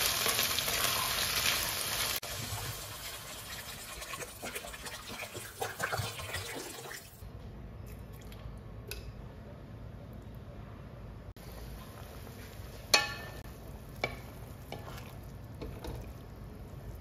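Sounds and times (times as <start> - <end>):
frying hiss: 0.0 - 5.7, 11.4 - 17.0
water pouring into a wok: 0.0 - 7.2.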